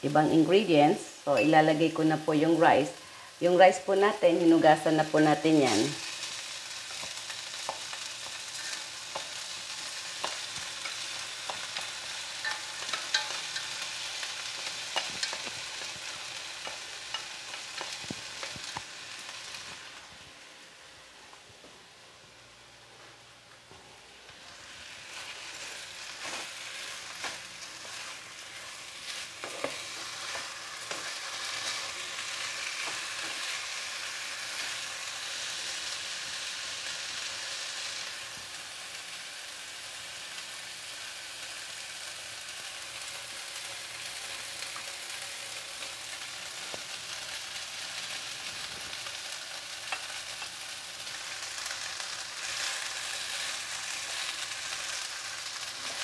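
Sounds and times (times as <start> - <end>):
rice sizzling in oil: 0.0 - 21.4, 23.6 - 56.0
spatula scraping and knocking pan: 27.2 - 32.0.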